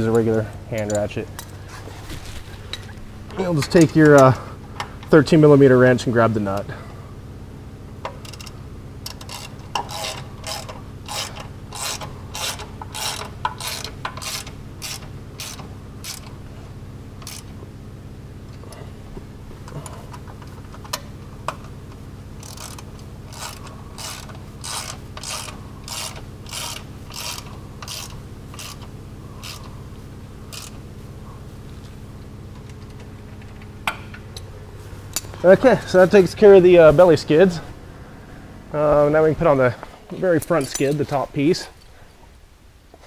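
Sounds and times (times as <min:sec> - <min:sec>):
hand ratchet clicking: 0:08.1 - 0:16.3, 0:17.2 - 0:17.5, 0:22.4 - 0:29.7, 0:30.5 - 0:30.8.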